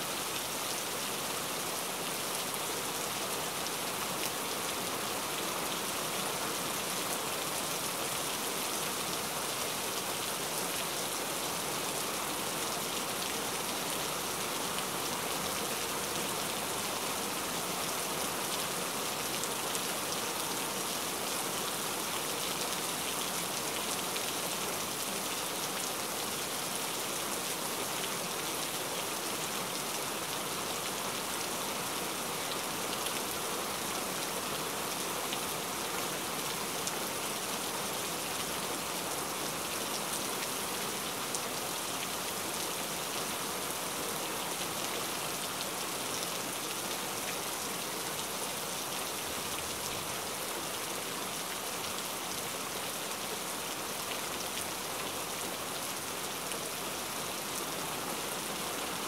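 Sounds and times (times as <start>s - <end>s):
rain-like hiss: 0.0s - 59.0s.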